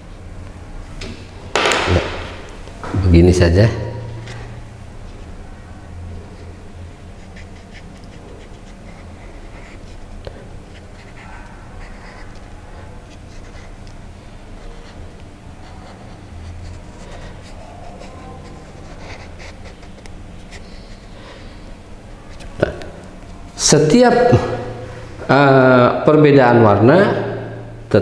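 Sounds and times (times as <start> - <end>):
steady low hum: 0.0 - 28.0
marker pen scratching on paper: 7.2 - 21.2.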